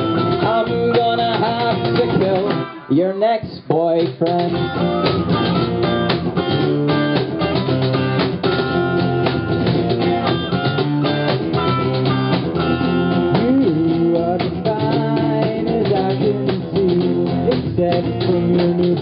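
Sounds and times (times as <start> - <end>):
electric guitar: 0.0 - 2.9, 4.1 - 19.0
strummed acoustic guitar: 0.0 - 3.1, 3.7 - 19.0
cajon beat: 0.0 - 19.0.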